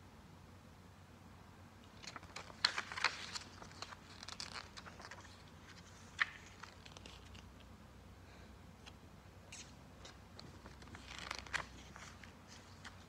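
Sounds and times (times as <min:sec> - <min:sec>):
packaging crinkling and tearing: 0:02.0 - 0:07.5, 0:10.6 - 0:13.0.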